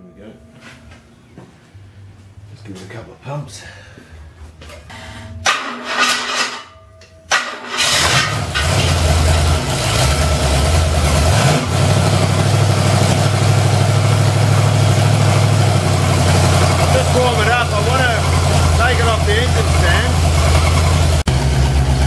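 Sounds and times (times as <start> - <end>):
engine running steadily: 7.8 - 22.0.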